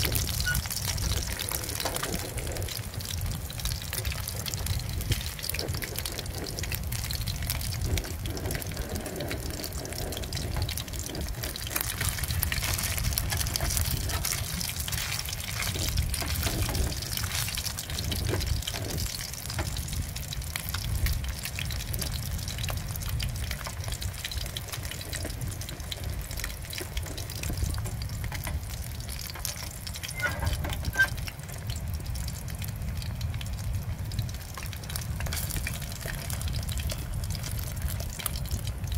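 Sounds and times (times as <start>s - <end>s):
fish frying in hot oil: 0.0s - 38.9s.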